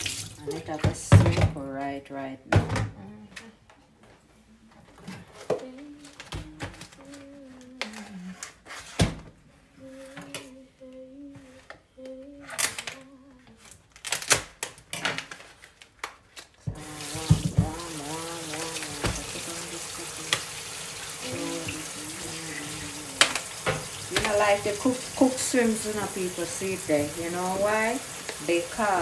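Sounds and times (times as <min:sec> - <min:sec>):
hands rinsing under water: 0:00.0 - 0:00.6, 0:16.7 - 0:29.0
tap water running into sink: 0:00.0 - 0:01.3, 0:16.7 - 0:29.0
person humming: 0:02.9 - 0:03.7, 0:05.3 - 0:08.6, 0:09.8 - 0:13.7, 0:16.7 - 0:20.6, 0:21.2 - 0:25.3.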